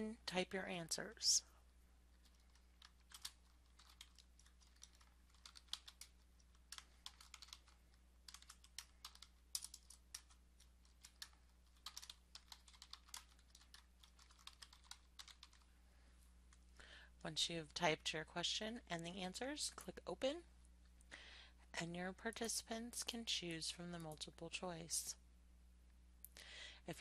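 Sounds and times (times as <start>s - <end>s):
low electrical hum: 0.0s - 27.0s
typing on computer keyboard: 2.2s - 15.6s.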